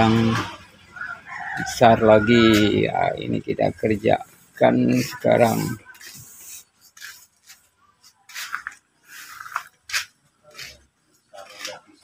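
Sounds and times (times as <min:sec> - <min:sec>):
scratchy hand work sounds: 0:04.6 - 0:12.0.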